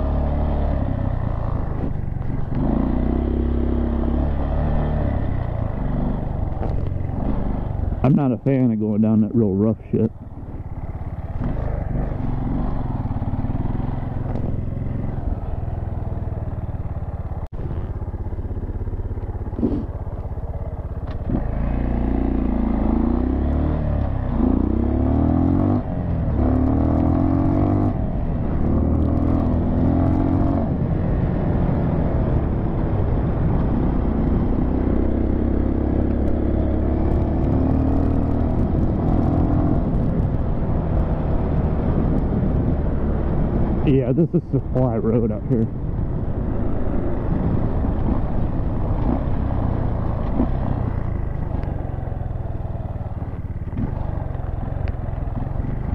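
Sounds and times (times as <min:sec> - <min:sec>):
motorcycle engine accelerating: 0:00.0 - 0:55.9.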